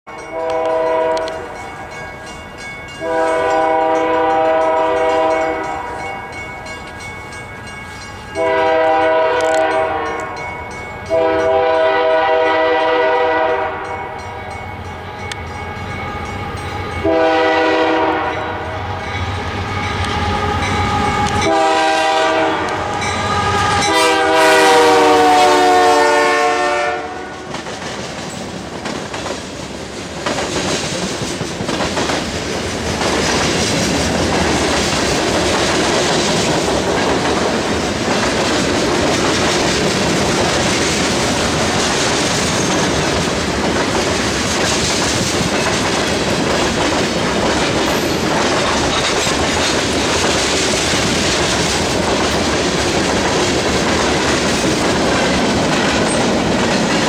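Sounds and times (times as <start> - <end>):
locomotive air horn blasts: 0.2 - 1.6, 3.0 - 6.1, 8.4 - 10.4, 11.0 - 14.2, 16.8 - 27.5
freight cars clickety-clack: 27.4 - 57.0.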